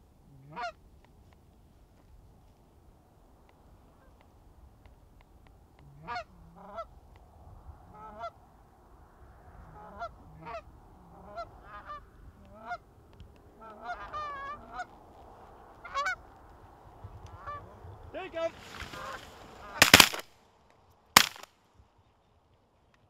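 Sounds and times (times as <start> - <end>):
goose honking and clucking: 0.4 - 0.8, 6.0 - 6.9, 9.7 - 12.8, 13.6 - 14.9, 15.8 - 16.2.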